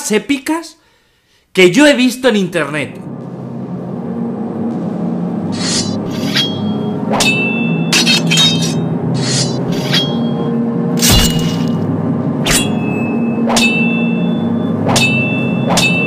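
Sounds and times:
metallic clashes: 5.5s - 11.8s, 12.4s - 16.0s
heavy hit thud: 11.0s - 11.8s.

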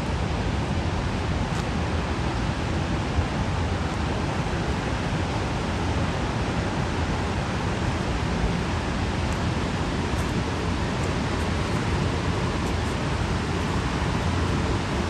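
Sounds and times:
waterfall rushing: 3.4s - 15.0s.

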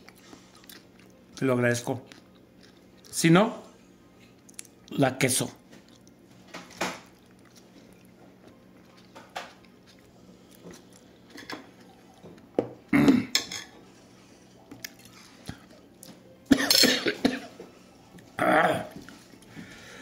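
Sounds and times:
person coughing: 12.9s - 13.4s, 16.5s - 17.6s.

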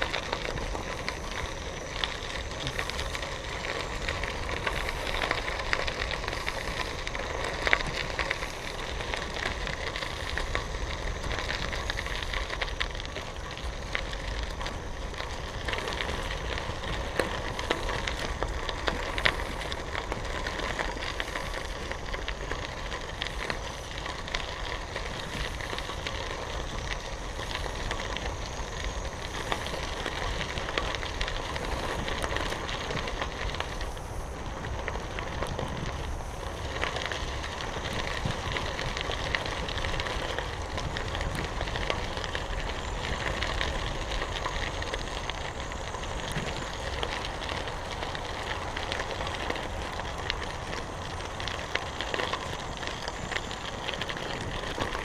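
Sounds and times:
bicycle tyres crunching gravel: 0.0s - 55.0s.

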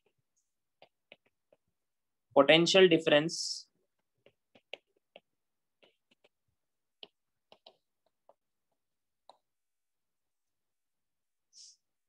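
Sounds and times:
stylus tapping on glass screen: 4.2s - 9.6s.

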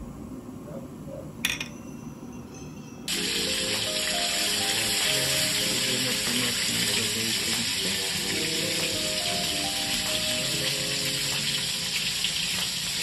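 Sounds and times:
background music: 1.6s - 13.0s
water boiling: 3.1s - 13.0s.

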